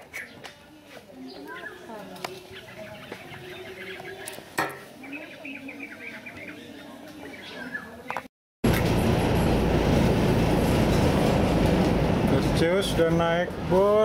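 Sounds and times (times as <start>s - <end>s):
small birds chirping: 0.0s - 8.3s.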